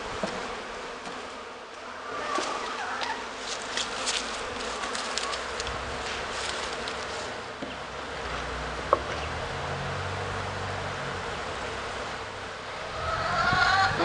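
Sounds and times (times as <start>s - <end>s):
honeybees buzzing: 0.0s - 14.0s
sharp tap on wooden hive: 0.2s - 0.4s, 7.6s - 7.8s, 8.9s - 9.3s.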